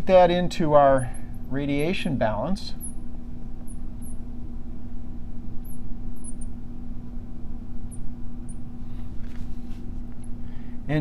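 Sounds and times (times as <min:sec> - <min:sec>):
constant hum: 0:00.0 - 0:11.0
low room rumble: 0:00.0 - 0:11.0
marker squeaking on glass: 0:05.6 - 0:06.5.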